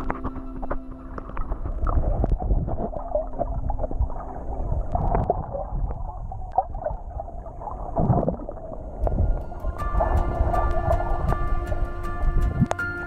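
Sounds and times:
muffled underwater gurgling: 0.0 - 12.8.

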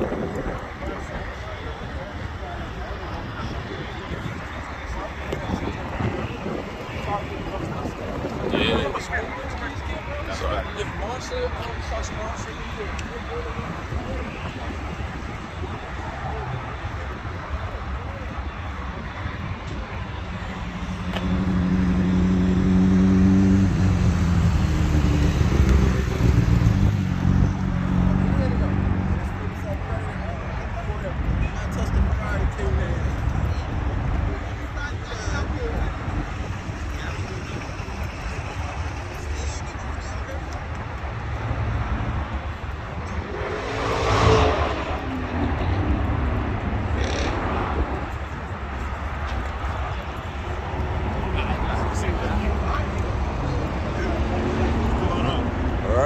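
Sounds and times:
car engine passing: 20.1 - 30.2, 41.0 - 56.0.

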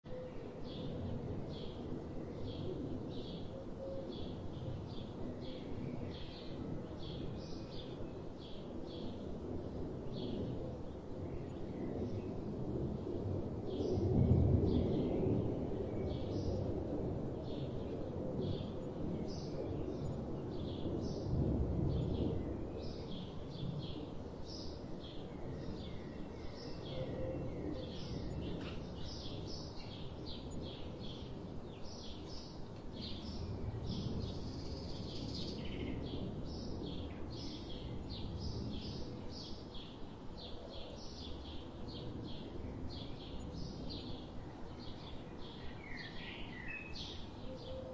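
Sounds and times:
songbirds chipping: 0.1 - 47.9.

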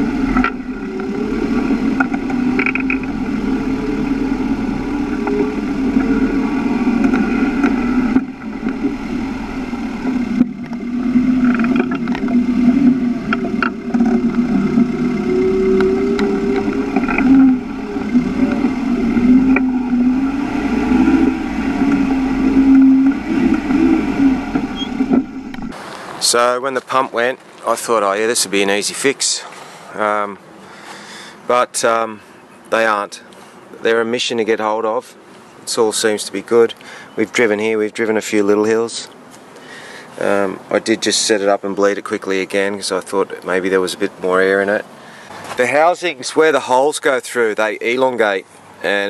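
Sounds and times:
diesel engine labouring: 0.0 - 27.1.

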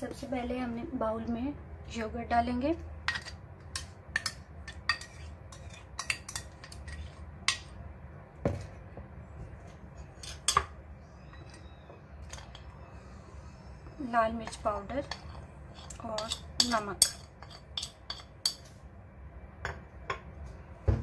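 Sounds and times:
spoon scraping and tapping bowls: 3.0 - 7.8, 10.2 - 10.8, 12.2 - 12.7, 14.4 - 18.7.

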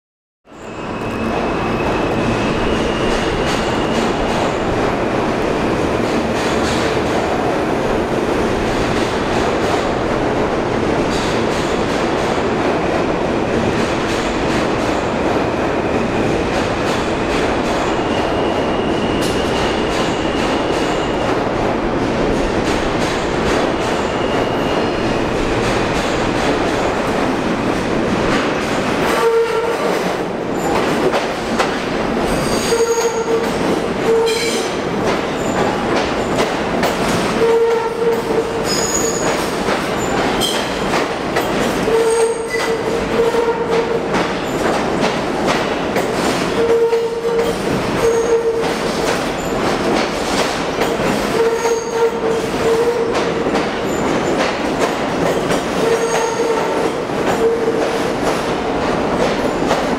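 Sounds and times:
subway wheels rumbling on rail: 0.5 - 59.9
wheel squeal: 0.6 - 4.0, 38.7 - 39.2.

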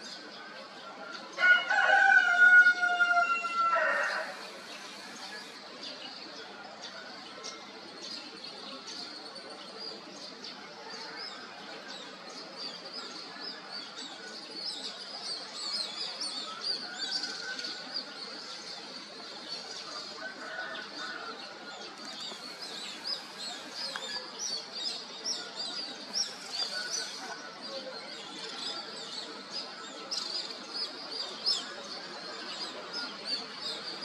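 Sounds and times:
small birds chirping: 21.6 - 31.0.

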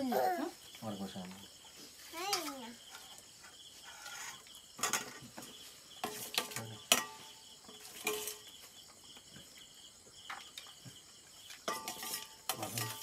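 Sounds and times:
crickets chirping: 0.0 - 13.0
metal plates and spoon clinking: 4.1 - 8.5, 11.5 - 13.0.

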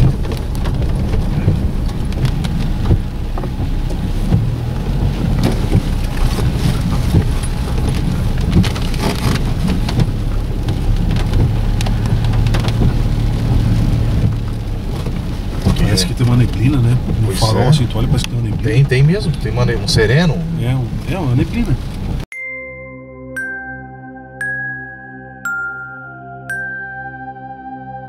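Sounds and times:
sharp ticks and knocks: 0.0 - 15.7
car engine and road rumble: 0.0 - 22.3
rain falling on car: 0.0 - 22.3.

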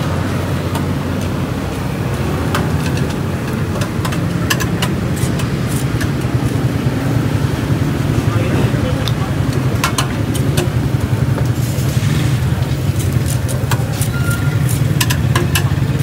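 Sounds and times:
tongs clicking on grill racks: 2.4 - 6.6, 12.8 - 16.0.

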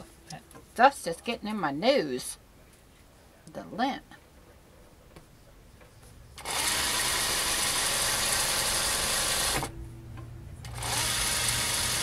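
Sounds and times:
electric sewing machine stitching: 6.4 - 9.7, 10.6 - 12.0.

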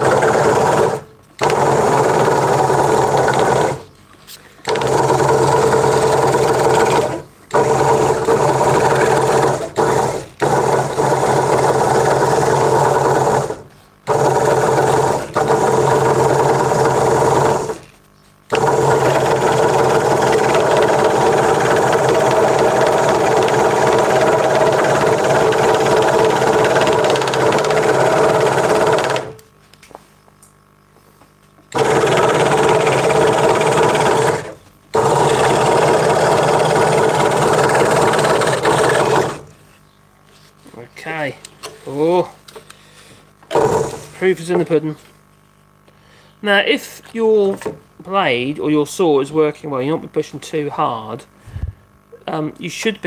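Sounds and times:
scroll saw cutting wood: 0.0 - 3.9, 4.6 - 17.9, 18.5 - 29.4, 31.7 - 39.6, 43.5 - 44.2.

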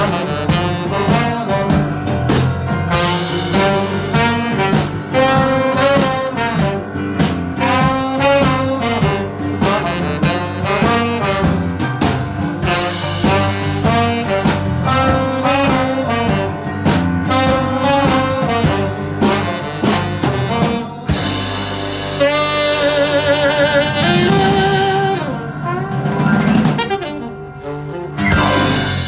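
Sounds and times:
small jazz band playing: 0.0 - 29.0
horns holding long notes: 2.9 - 7.0, 22.2 - 29.0.

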